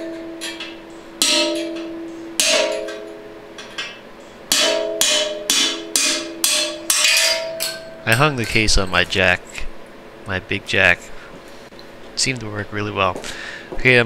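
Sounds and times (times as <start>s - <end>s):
hammer striking metal: 0.0s - 9.2s.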